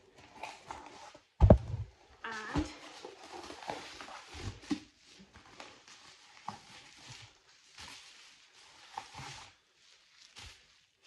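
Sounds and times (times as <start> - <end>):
knocks of items being handled: 1.4 - 1.9
bubble wrap rustling and crinkling: 2.3 - 11.0.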